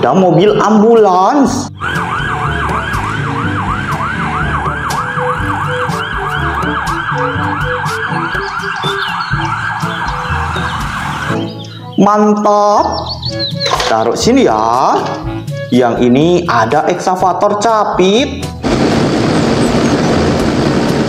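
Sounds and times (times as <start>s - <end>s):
ambulance siren yelping: 1.7s - 12.0s.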